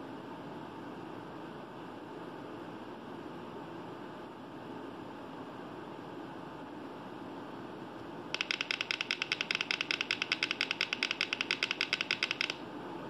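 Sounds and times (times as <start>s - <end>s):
rapid buzzer beeping: 8.4s - 12.6s.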